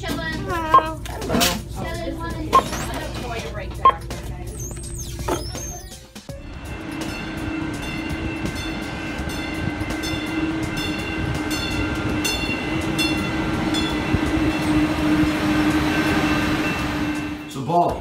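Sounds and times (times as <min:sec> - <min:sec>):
train hum with steady tones: 0:00.0 - 0:18.0.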